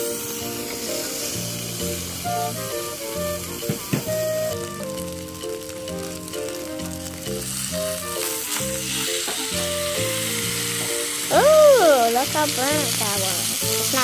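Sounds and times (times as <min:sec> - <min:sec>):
background music: 0:00.0 - 0:14.0
steak sizzling in a skillet: 0:00.0 - 0:14.0.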